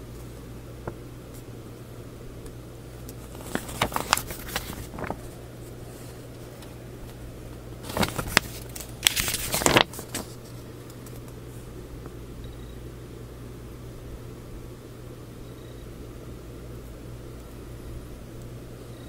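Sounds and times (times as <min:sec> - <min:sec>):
paper pages rustling: 0:03.1 - 0:07.2, 0:07.8 - 0:11.4.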